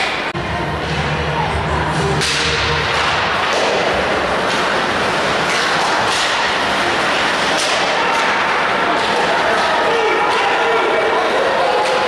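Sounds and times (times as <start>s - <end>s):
skates scraping on ice: 2.9s - 9.9s.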